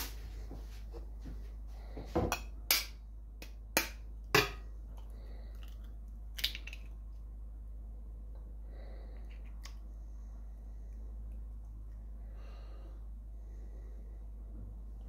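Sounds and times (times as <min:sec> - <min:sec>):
steady low hum: 0:00.0 - 0:15.0
egg cracking on bowl rim: 0:06.4 - 0:06.9.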